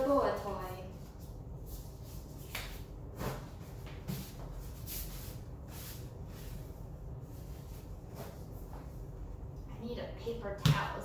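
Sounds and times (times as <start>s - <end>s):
tissue wiping a countertop: 3.2s - 9.1s.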